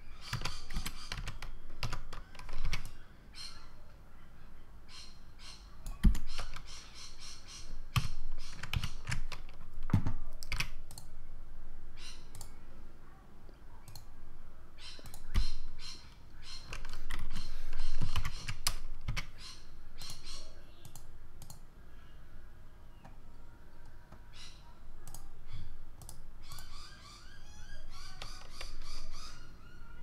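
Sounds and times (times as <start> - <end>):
computer keyboard keys clicking: 0.2 - 3.0, 7.9 - 11.1, 13.8 - 14.1, 16.6 - 19.3, 20.0 - 21.6, 25.0 - 25.3, 26.0 - 26.7
mouse buttons clicking: 8.0 - 11.1, 12.0 - 12.6, 13.8 - 14.1, 14.8 - 15.9, 20.0 - 21.6, 25.0 - 26.8.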